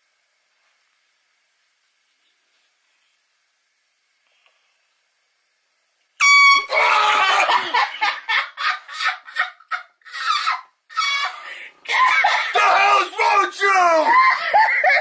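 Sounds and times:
air horn blast: 0:06.2 - 0:06.7
person yelling: 0:06.6 - 0:07.8, 0:11.9 - 0:14.5.

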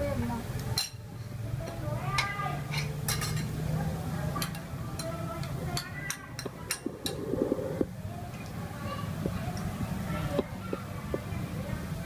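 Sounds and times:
steady low hum: 0:06.6 - 0:10.1.

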